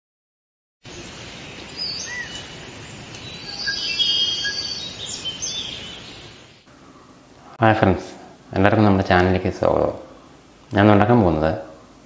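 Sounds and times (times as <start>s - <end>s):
birds calling: 0.9s - 7.2s
steady background hiss: 0.9s - 12.0s
trilling bird whistles: 1.8s - 2.5s, 3.2s - 6.3s.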